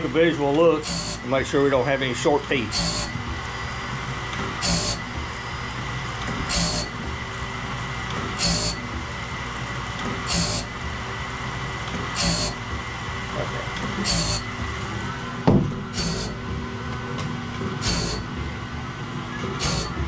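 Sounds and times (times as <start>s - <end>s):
blade sharpener running: 0.0s - 17.0s, 17.6s - 18.6s, 19.3s - 20.0s
short hissing grind: 15.9s - 16.4s, 17.8s - 18.3s, 19.6s - 20.0s.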